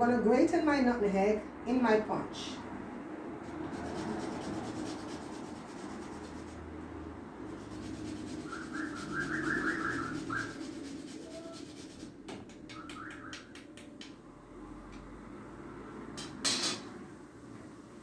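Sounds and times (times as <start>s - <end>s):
nutmeg scraping on grater: 7.5s - 12.1s.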